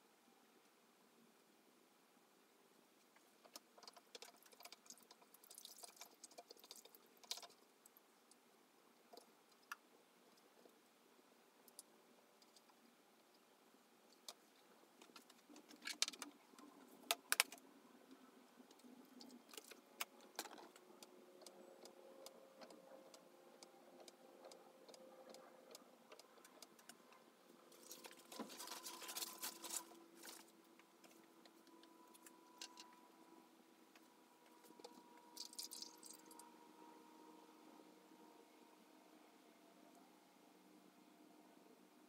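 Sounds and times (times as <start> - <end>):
paper rustling: 27.7 - 31.2.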